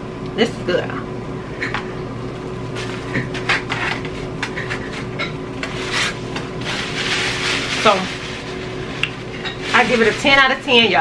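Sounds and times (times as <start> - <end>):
plastic containers rustling: 2.5 - 11.0.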